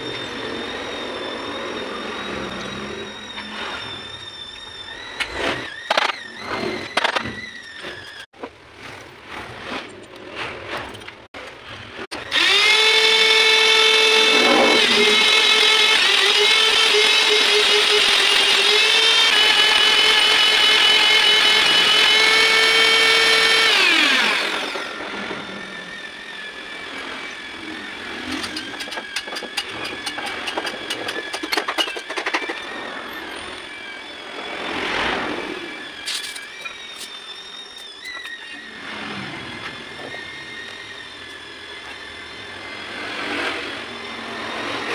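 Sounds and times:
die grinder whining: 0.0 - 8.3, 11.1 - 44.9.

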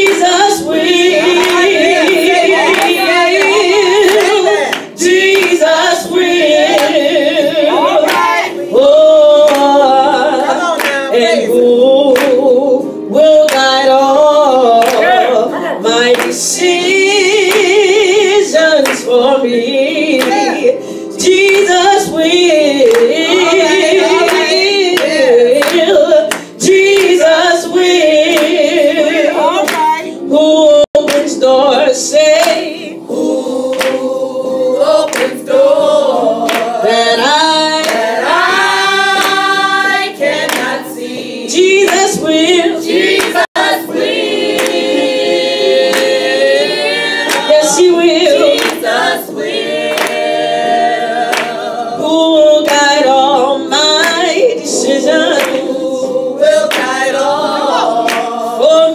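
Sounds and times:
gospel group singing: 0.0 - 58.9
hands clapping: 1.3 - 5.7, 6.6 - 7.1, 7.9 - 8.5, 9.5 - 9.8, 10.8 - 11.1, 12.2 - 12.4, 13.5 - 13.8, 14.8 - 15.2, 16.1 - 16.4, 17.5 - 17.8, 20.2 - 20.5, 22.9 - 23.2, 24.2 - 27.2, 29.6 - 30.0, 33.7 - 34.1, 35.1 - 35.4, 36.5 - 36.8, 37.8 - 38.2, 39.1 - 40.8, 43.0 - 43.7, 44.5 - 45.0, 45.9 - 46.2, 47.2 - 47.8, 48.5 - 49.2, 49.8 - 50.5, 51.3 - 51.7, 55.3 - 55.7, 56.7 - 57.0, 58.0 - 58.4.

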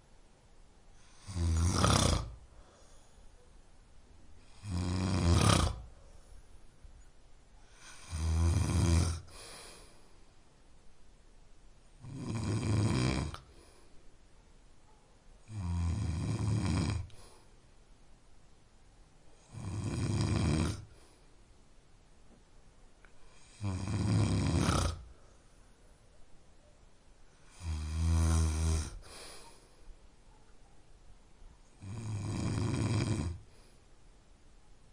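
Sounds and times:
man snoring loudly: 1.1 - 2.4, 4.5 - 5.9, 7.8 - 9.3, 12.0 - 13.5, 15.5 - 17.2, 19.4 - 20.9, 23.4 - 25.1, 27.5 - 29.1, 31.8 - 33.5
faint breathing: 2.3 - 3.6, 5.6 - 7.0, 9.2 - 10.6, 13.4 - 14.3, 17.0 - 17.8, 20.8 - 21.6, 28.5 - 30.3, 33.4 - 34.1.

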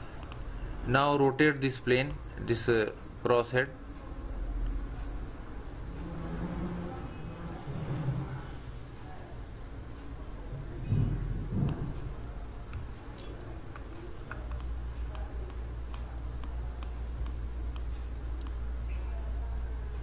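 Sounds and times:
light ticking: 0.0 - 0.6, 11.7 - 19.2
low steady hum: 0.0 - 20.0.

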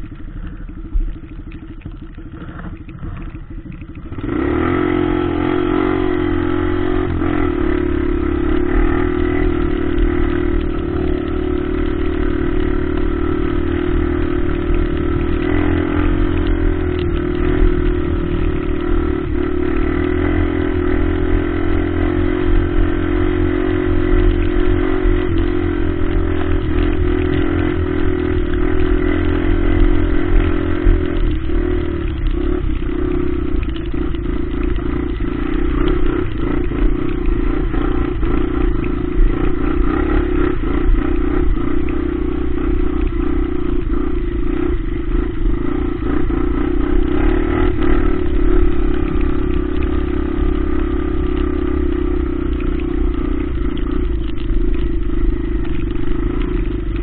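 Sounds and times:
dirt bike engine idling: 0.0 - 5.2, 22.0 - 57.0.

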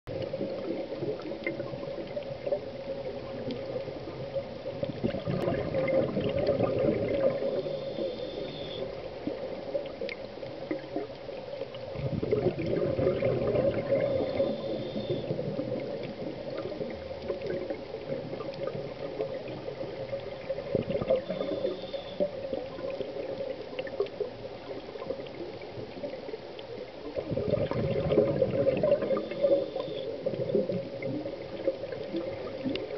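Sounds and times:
scuba regulator bubbles gurgling: 0.1 - 32.9
scuba inhalation: 7.2 - 8.9, 12.3 - 15.4, 21.1 - 22.3, 27.5 - 30.2.

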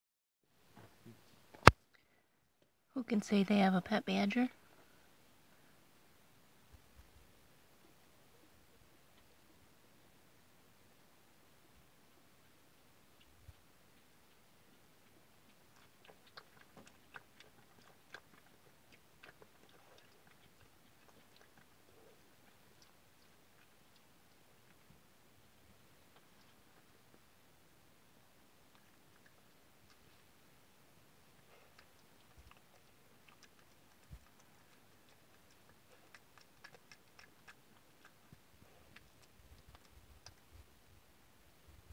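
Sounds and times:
animal mouth clicks and smacks: 13.2 - 24.8, 31.6 - 40.7.

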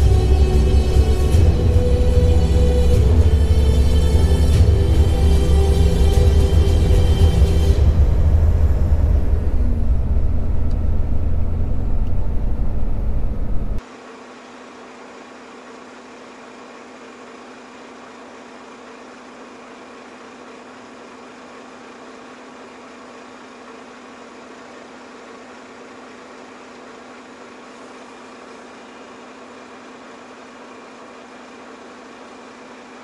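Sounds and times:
engine idling: 0.0 - 33.0.

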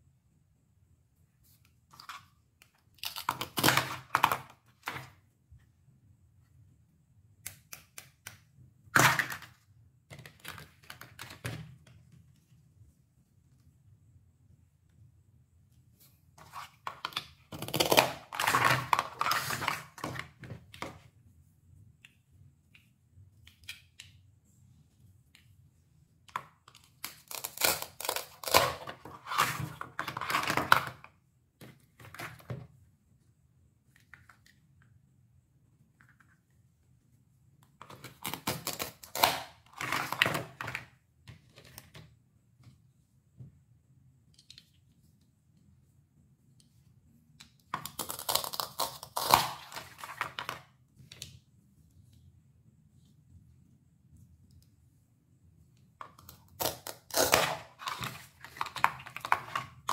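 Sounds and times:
velcro tearing and crackling: 27.1 - 29.4, 47.9 - 50.0, 56.5 - 58.0.

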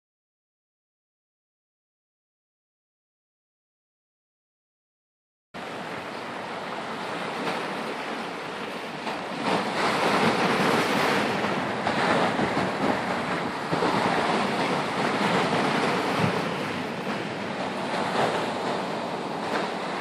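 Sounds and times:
waves breaking on rocky shore: 5.6 - 20.0.

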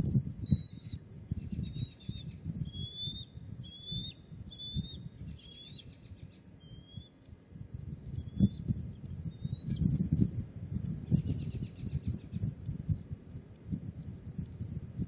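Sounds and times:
high thin bird chirps: 0.5 - 7.2.

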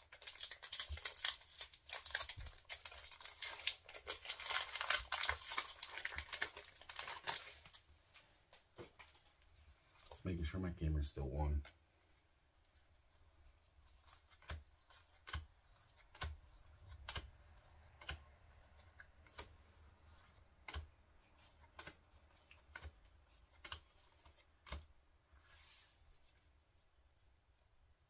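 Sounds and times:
cards rustling: 0.0 - 10.2, 12.9 - 26.6
trading cards snapping: 14.3 - 17.3, 17.9 - 18.3, 20.6 - 20.9, 21.7 - 22.0, 22.6 - 24.9.

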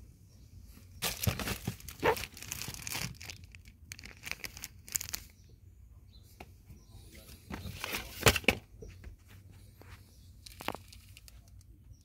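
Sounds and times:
cardboard and plastic wrap crinkling: 1.0 - 5.4, 10.4 - 11.6.

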